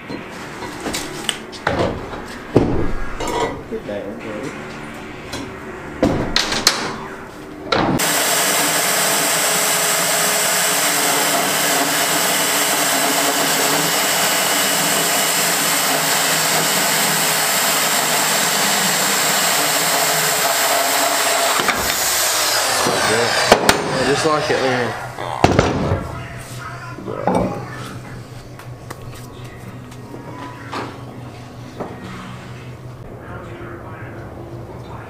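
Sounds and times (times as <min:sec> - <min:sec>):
circular saw cutting metal: 0:08.0 - 0:25.2.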